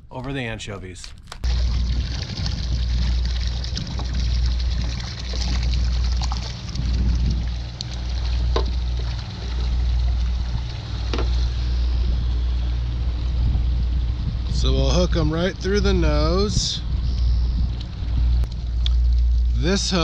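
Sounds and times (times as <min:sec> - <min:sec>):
water sloshing in a bucket: 0:01.0 - 0:12.1, 0:17.4 - 0:20.0
low rumble: 0:01.4 - 0:20.0.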